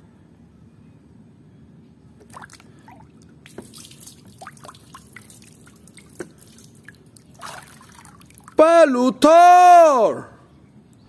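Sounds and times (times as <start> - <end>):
toy swishing through water: 2.2 - 8.6
water splashing in plastic tub: 2.2 - 8.6.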